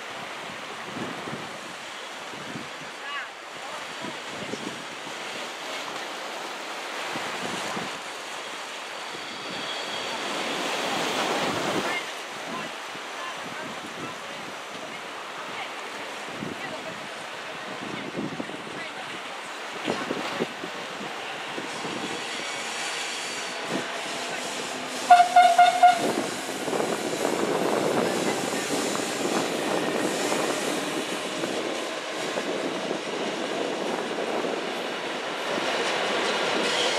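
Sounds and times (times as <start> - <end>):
wind on microphone: 0.0 - 3.0, 4.0 - 5.3, 7.1 - 8.0, 16.2 - 36.9
train rumbling past: 0.0 - 14.1, 14.7 - 36.9
small waves on stony beach: 0.0 - 36.3
train horn blast: 23.1 - 26.6.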